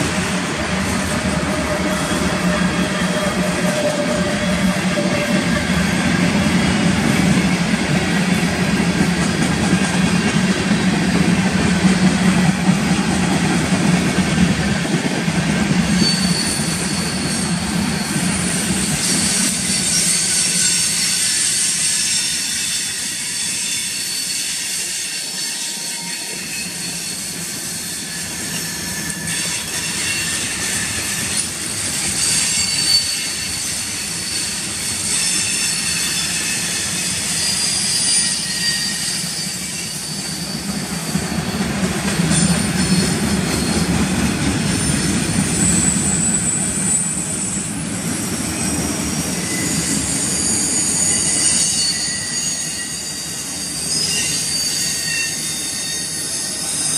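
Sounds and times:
train wheels rumbling and clattering: 0:00.0 - 0:56.9
wheel squeals: 0:15.8 - 0:56.9.

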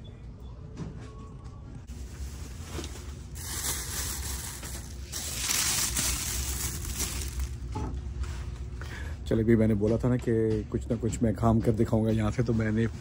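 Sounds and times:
plastic bag rustling: 0:01.9 - 0:07.8.

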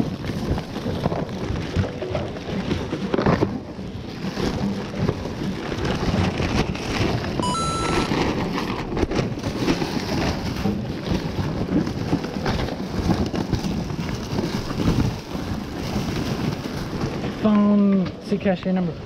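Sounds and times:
plastic bag crinkling and rustling: 0:00.0 - 0:17.8.

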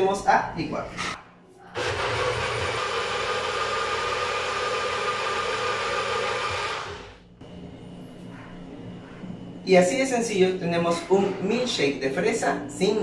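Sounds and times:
blender motor running: 0:01.8 - 0:07.2.

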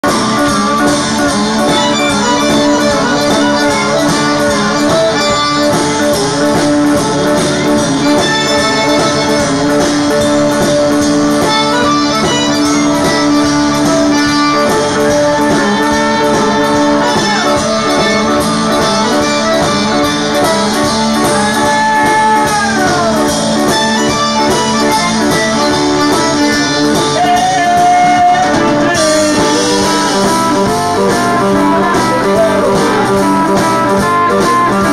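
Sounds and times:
guitar: 0:00.0 - 0:34.9
person singing: 0:00.0 - 0:34.9
steady beat: 0:00.0 - 0:34.9
button accordion playing: 0:00.3 - 0:21.9, 0:23.2 - 0:27.8.

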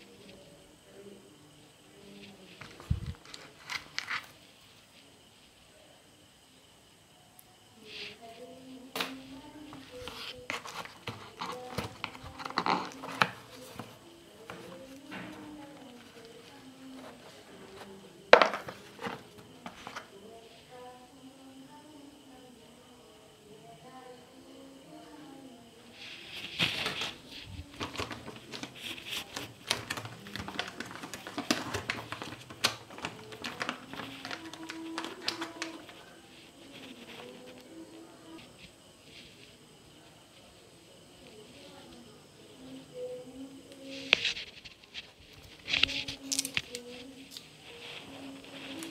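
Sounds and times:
anti-static bag crinkling: 0:02.2 - 0:04.4, 0:08.9 - 0:20.2, 0:26.0 - 0:37.8, 0:43.8 - 0:48.9
hands handling cardboard box: 0:09.7 - 0:15.3, 0:18.4 - 0:20.1, 0:26.4 - 0:35.9.

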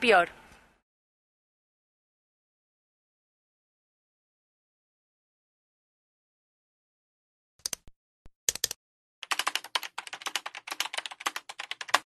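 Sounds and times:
keyboard key clicks: 0:08.5 - 0:12.0.

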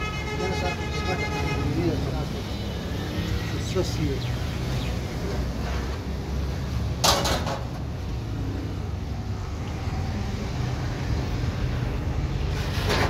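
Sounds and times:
loud scrape or clatter: 0:12.5 - 0:13.0.

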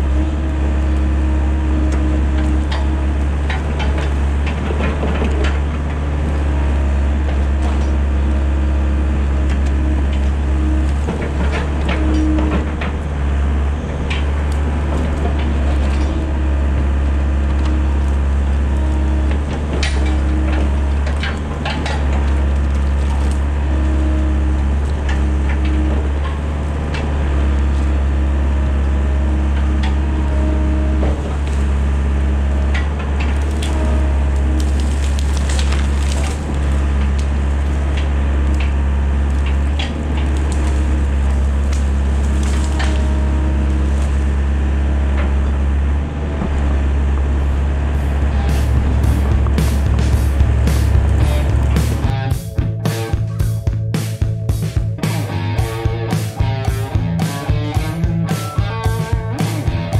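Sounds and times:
diesel engine running: 0:00.0 - 0:59.9
hydraulic whine: 0:00.0 - 0:59.9
brush and roots snapping: 0:32.8 - 0:44.3.

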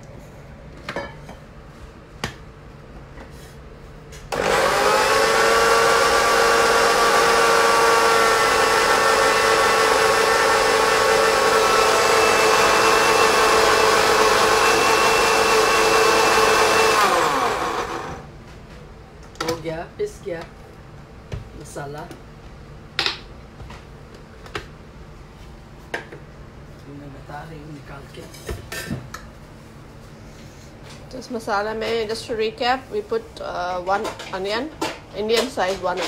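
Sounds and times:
blender motor whining: 0:04.3 - 0:18.2.

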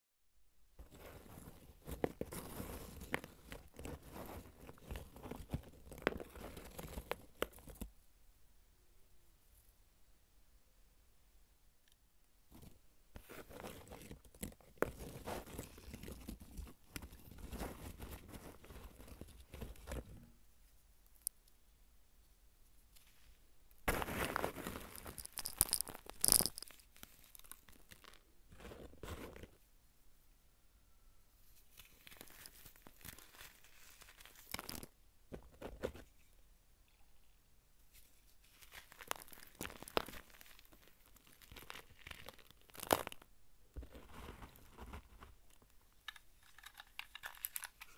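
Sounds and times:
fingers crushing powder blocks: 0:00.8 - 0:07.9, 0:12.5 - 0:20.3, 0:23.8 - 0:29.6, 0:31.6 - 0:36.0, 0:38.4 - 0:47.9.

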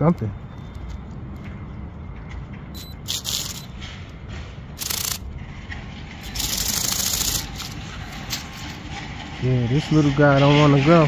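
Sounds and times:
toy bird wings buzzing and scraping: 0:03.0 - 0:03.7, 0:04.8 - 0:05.2, 0:06.2 - 0:08.8.

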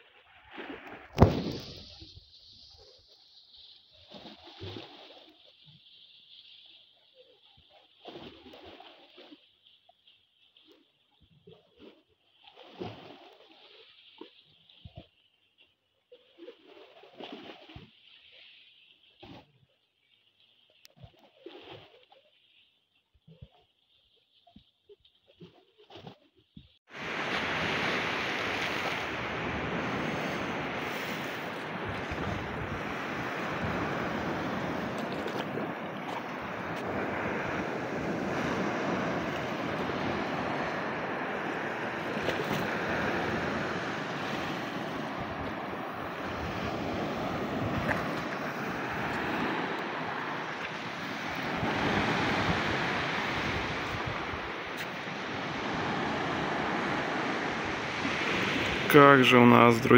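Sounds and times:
waves washing onto shore: 0:00.0 - 0:09.5, 0:26.8 - 0:59.9
wind buffeting microphone: 0:27.8 - 0:54.6.

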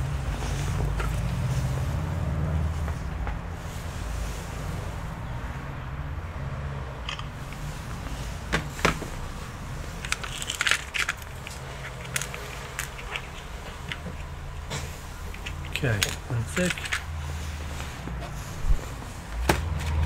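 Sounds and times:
plastic box clicks and clatter: 0:10.0 - 0:14.2.

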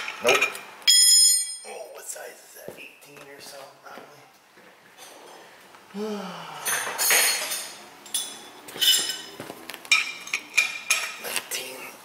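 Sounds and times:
metal tools clinking: 0:06.8 - 0:11.4.

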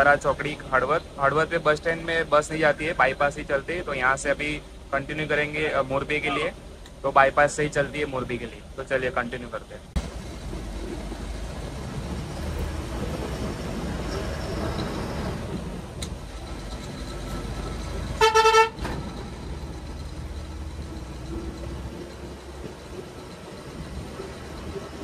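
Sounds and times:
bus road and engine noise: 0:00.0 - 0:25.0
vehicle horn blast: 0:06.2 - 0:06.5, 0:18.2 - 0:18.8.

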